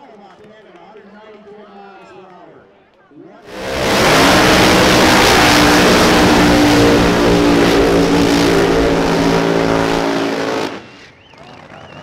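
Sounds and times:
racing engines at high revs: 0:03.5 - 0:11.1.

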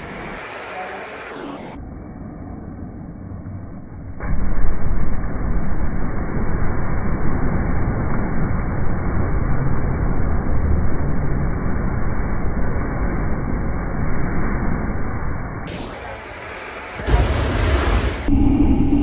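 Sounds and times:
flamethrower rushing flame: 0:04.2 - 0:19.0.

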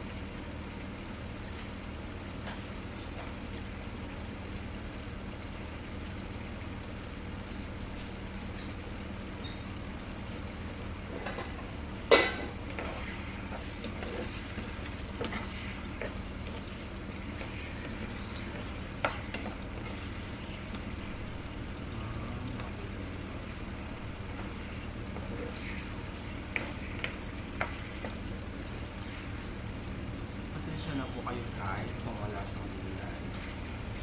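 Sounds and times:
sauce sizzling in frying pan: 0:00.0 - 0:34.0
spoon stirring: 0:12.2 - 0:21.5, 0:23.4 - 0:28.2.

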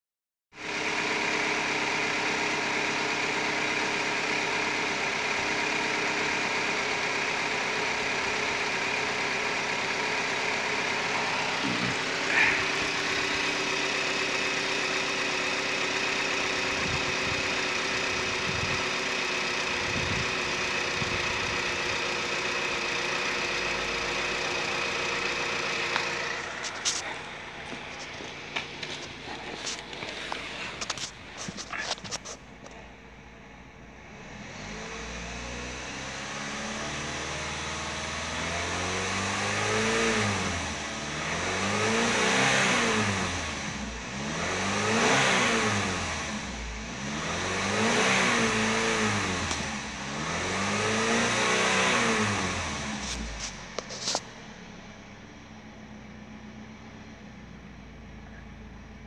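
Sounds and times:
car engine idling: 0:00.6 - 0:59.0
engine chirp: 0:41.3 - 0:59.0.

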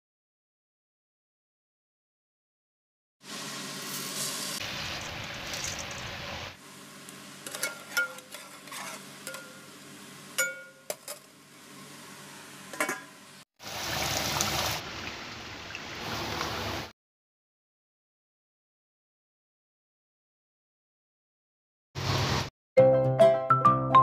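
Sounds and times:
steady cooking hiss: 0:03.2 - 0:10.4, 0:11.1 - 0:14.8
rice poured into metal pot: 0:03.7 - 0:06.2
spoon clinking against pot: 0:07.5 - 0:09.7, 0:10.4 - 0:11.2.

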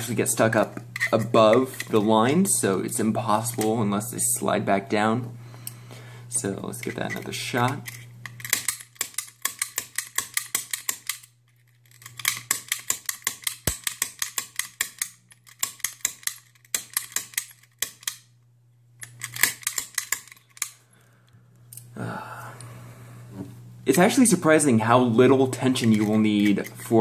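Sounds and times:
snap gun clicking in a lock: 0:07.7 - 0:11.3, 0:19.0 - 0:20.8.

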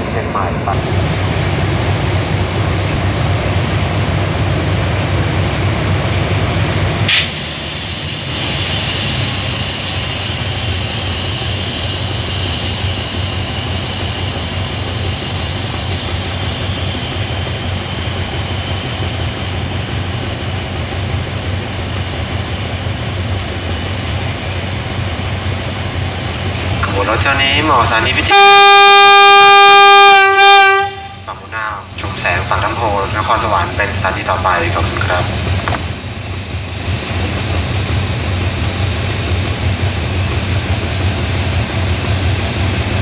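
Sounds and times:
locomotive engine rumbling: 0:00.0 - 0:43.0
steady high whine: 0:31.1 - 0:43.0.

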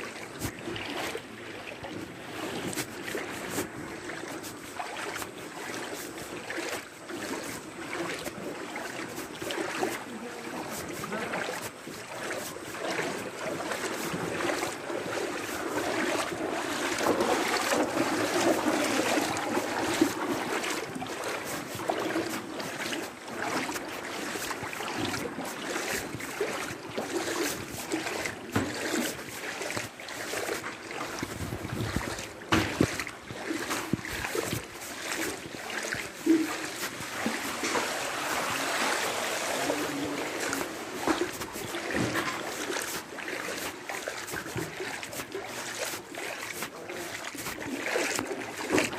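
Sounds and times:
floodwater splashing: 0:00.0 - 0:48.9
wind buffeting microphone: 0:31.2 - 0:33.0.

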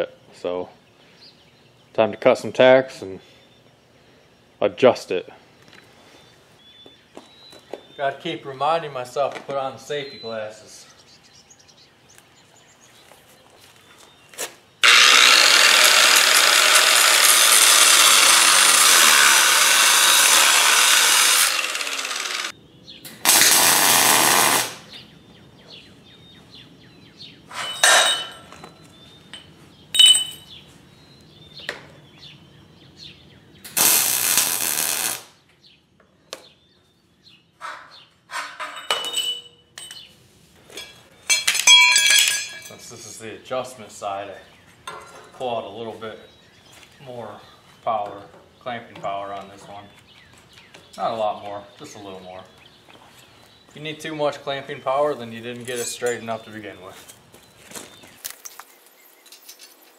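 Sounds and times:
angle grinder cutting steel: 0:14.8 - 0:22.5, 0:33.8 - 0:35.2
metal clinks and knocks: 0:27.5 - 0:28.6, 0:29.3 - 0:30.6, 0:38.3 - 0:40.1, 0:40.7 - 0:42.8.

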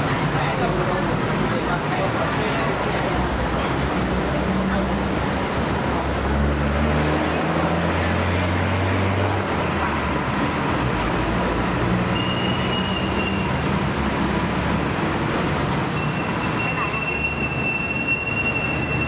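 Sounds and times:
street traffic noise: 0:00.0 - 0:19.0
high-pitched squealing tones: 0:15.8 - 0:19.0.

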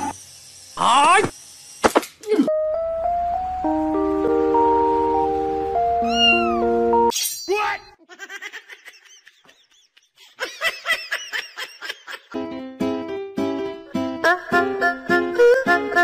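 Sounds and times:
music: 0:02.5 - 0:07.1, 0:12.4 - 0:16.0
cat meowing: 0:06.0 - 0:06.7.

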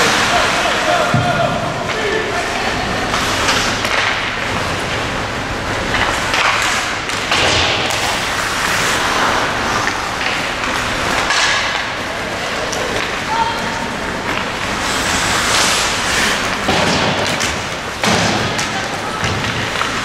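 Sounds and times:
skate blades scraping ice: 0:02.0 - 0:05.1, 0:05.7 - 0:20.0
sticks puck and boards knocking: 0:05.9 - 0:12.0, 0:15.5 - 0:20.0.

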